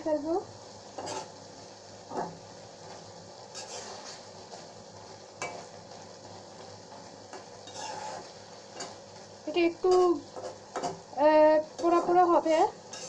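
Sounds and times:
curry sizzling in a pan: 0.0s - 13.0s
spatula scraping and tapping pan: 0.9s - 1.4s, 2.1s - 4.7s, 5.4s - 11.1s, 11.8s - 12.3s.

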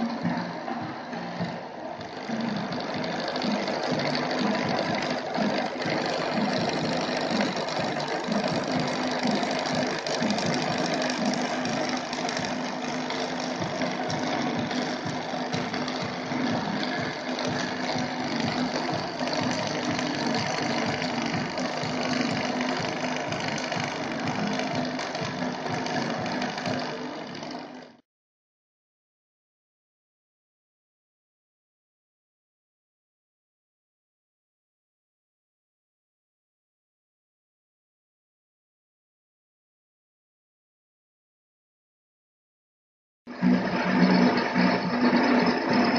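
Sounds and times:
milling machine running: 0.0s - 28.0s, 43.3s - 45.9s
cutter chattering in metal: 2.0s - 28.0s.

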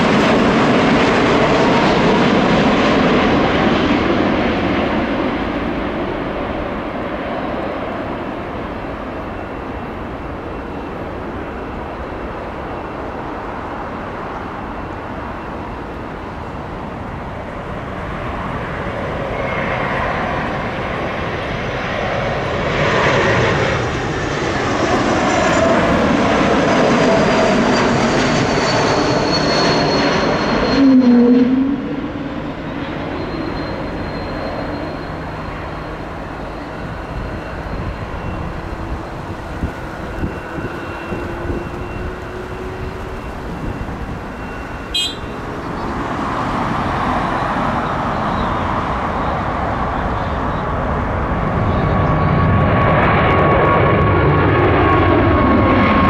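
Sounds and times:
distant jet noise with high tone: 0.0s - 56.0s
jet passing overhead: 0.0s - 56.0s.

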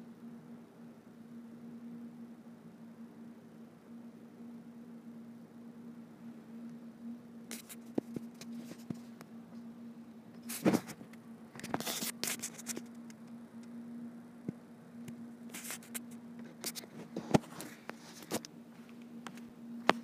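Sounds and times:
steady low hum: 0.0s - 20.0s
phone rubbing and scraping: 7.5s - 9.2s, 10.4s - 13.2s, 15.5s - 18.5s.

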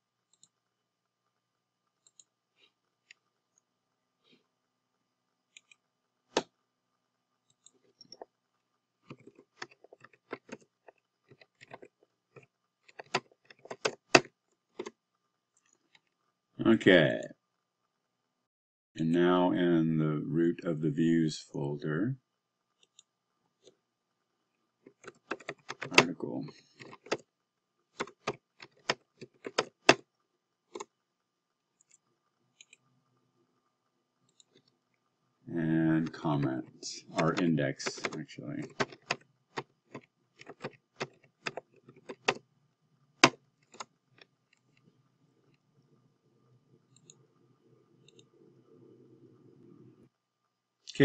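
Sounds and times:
keyboard keystrokes: 9.1s - 10.7s, 11.3s - 14.9s, 24.9s - 26.1s, 28.0s - 30.0s, 37.1s - 42.4s
keyboard keystroke clicks: 25.0s - 26.1s.

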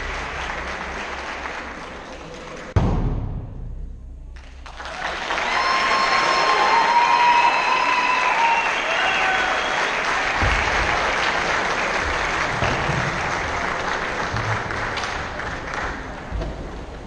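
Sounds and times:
audience applauding: 0.0s - 2.8s, 4.4s - 16.3s
whoops and cheers: 4.8s - 10.9s.

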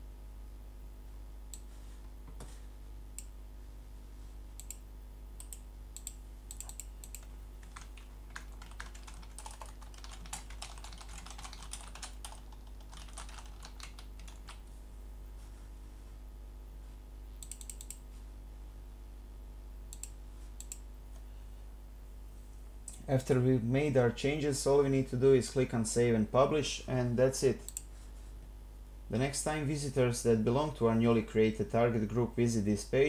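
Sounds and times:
faint low hum: 0.0s - 33.0s
typing on a computer keyboard: 5.4s - 14.6s, 17.4s - 18.0s.

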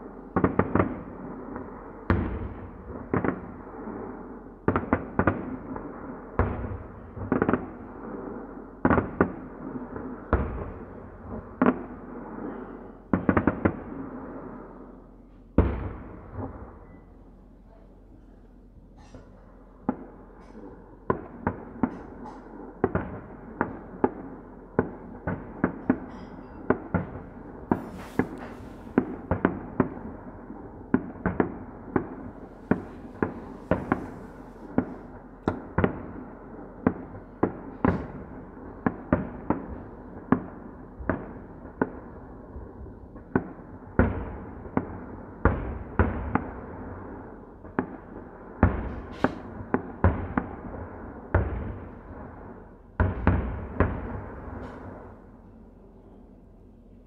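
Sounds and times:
fireworks shells bursting: 25.7s - 29.6s, 32.0s - 35.6s
high hissing crackle: 27.7s - 29.2s.

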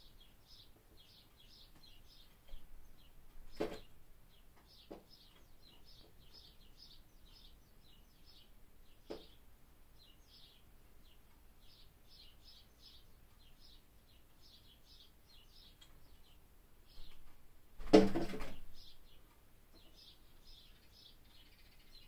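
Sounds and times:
high bird chirps: 19.8s - 22.0s.

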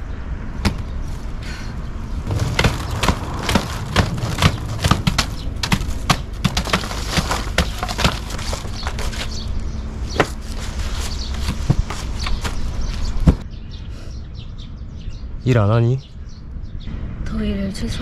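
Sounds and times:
steady low rumble: 0.0s - 10.9s
cardboard sheets being handled: 2.3s - 13.4s.

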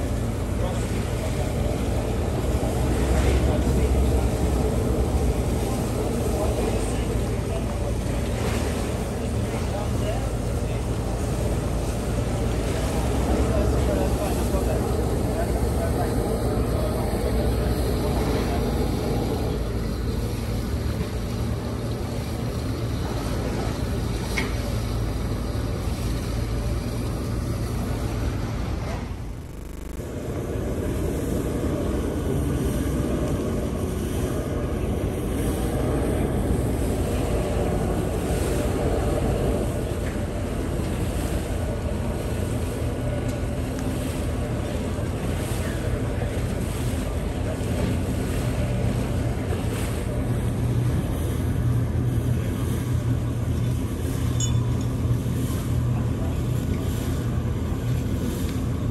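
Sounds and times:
churning water: 0.0s - 58.9s
diesel engines rumbling: 0.0s - 58.9s
wind buffeting microphone: 30.0s - 58.9s.

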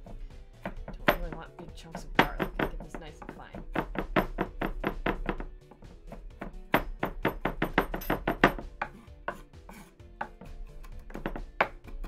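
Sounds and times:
cutting board knocking: 0.0s - 12.0s
knife chopping on cutting board: 0.0s - 12.0s.

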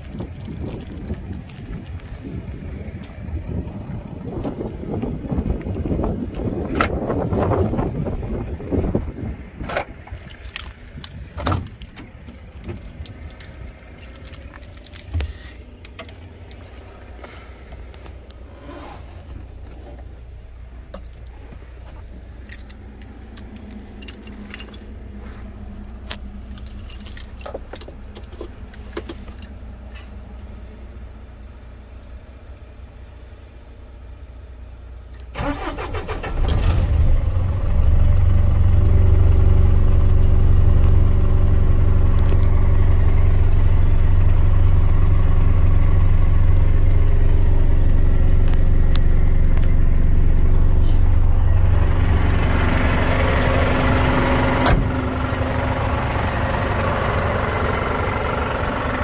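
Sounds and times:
diesel engine idling: 0.0s - 59.0s
keys and cab door handled: 9.6s - 18.7s, 19.3s - 30.6s
starter cranking diesel engine: 35.2s - 59.0s.

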